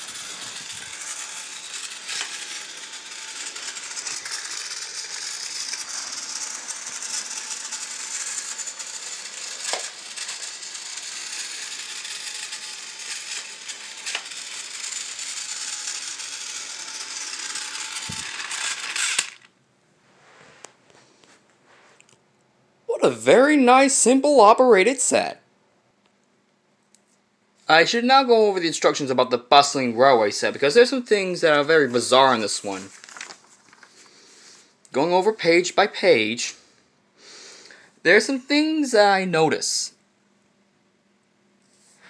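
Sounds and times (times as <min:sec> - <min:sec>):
toy train motor whirring: 0:00.0 - 0:19.5, 0:29.6 - 0:35.3.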